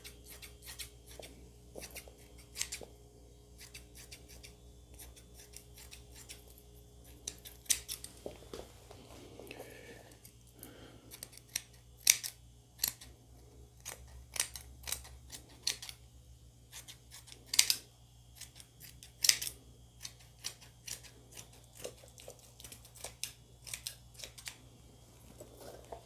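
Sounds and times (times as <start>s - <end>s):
scissors snipping fabric: 13.8s - 16.0s.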